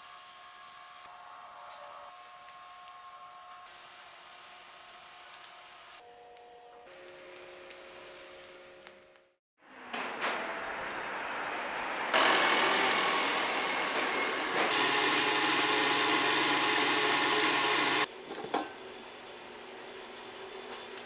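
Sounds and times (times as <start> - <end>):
machine motor humming: 12.2 - 18.1.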